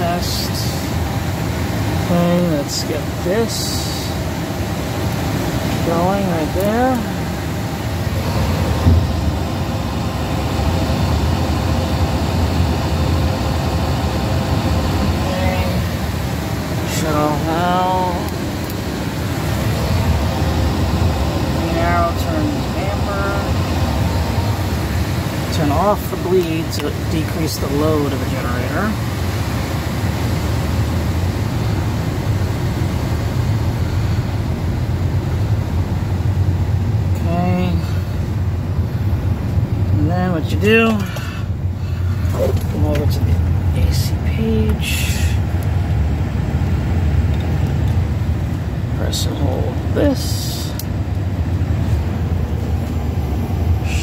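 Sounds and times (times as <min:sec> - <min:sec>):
cockpit ventilation noise: 0:00.0 - 0:54.0
electric pump humming: 0:00.0 - 0:54.0
hydraulic pump switching on thump: 0:08.8 - 0:09.2.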